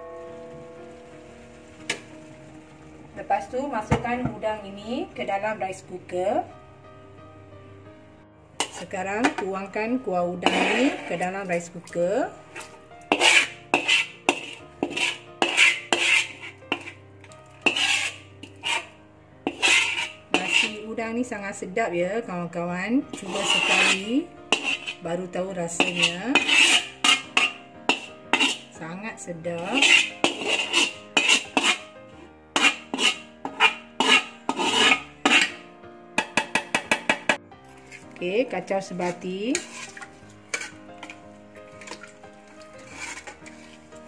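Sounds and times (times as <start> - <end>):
metal spatula scraping a pan: 8.6 - 9.5, 10.3 - 21.0, 23.1 - 28.8, 29.4 - 38.2, 38.9 - 44.0.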